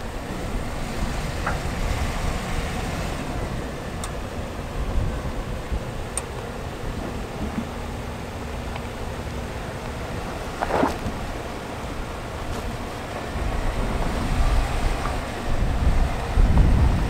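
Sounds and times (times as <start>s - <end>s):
pickup truck rumbling: 0.0s - 17.0s
rock crunching: 10.6s - 11.3s.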